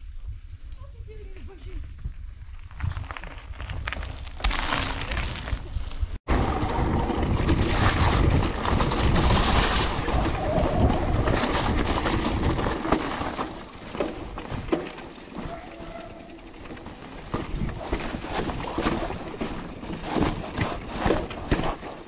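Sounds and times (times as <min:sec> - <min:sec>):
bike tyres over mud and stones: 0:01.7 - 0:22.0
bike rattling: 0:02.6 - 0:22.0
wind buffeting microphone: 0:05.4 - 0:12.9.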